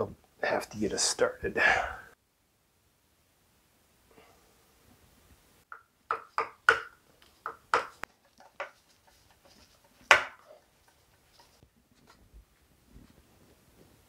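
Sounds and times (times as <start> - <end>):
hand tool knocking on wood: 5.7 - 8.8, 10.1 - 10.4.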